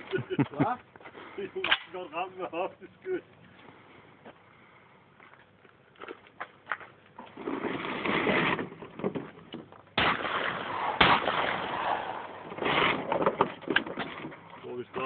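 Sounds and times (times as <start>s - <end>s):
shotgun shots: 10.0s - 13.1s.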